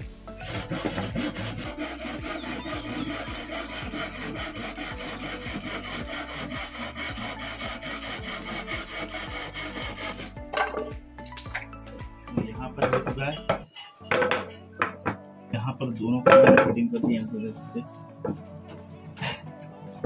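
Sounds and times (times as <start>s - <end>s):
hand saw cutting wood: 0.4s - 10.4s.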